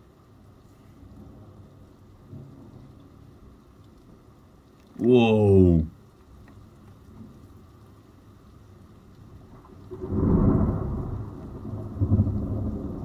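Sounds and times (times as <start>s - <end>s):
rain hiss: 0.0s - 13.0s
thunder rumbling: 9.4s - 13.0s.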